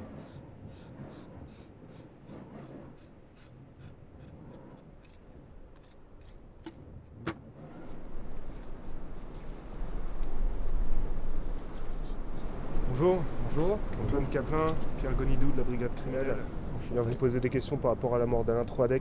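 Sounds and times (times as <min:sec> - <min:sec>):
knife scraping fish scales: 0:00.2 - 0:06.7.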